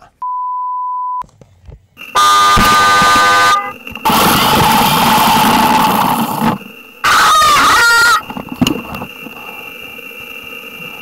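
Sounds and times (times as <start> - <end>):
loud horn blast: 2.1 - 3.8
glitter spraying with whirring hiss: 8.4 - 11.0.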